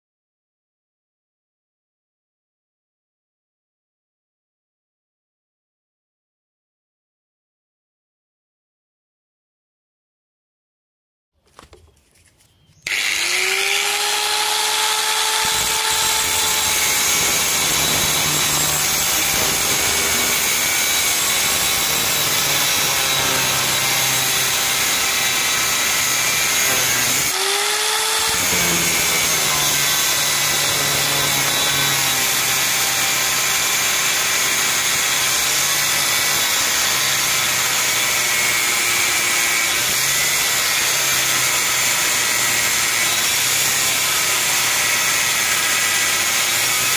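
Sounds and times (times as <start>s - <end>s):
angle grinder cutting steel: 12.8s - 46.9s.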